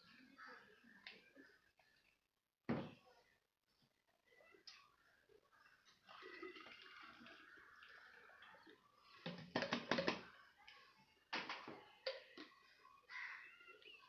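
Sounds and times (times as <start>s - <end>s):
water pouring into bottle: 6.0s - 10.4s
plastic bottles knocking: 9.0s - 10.4s.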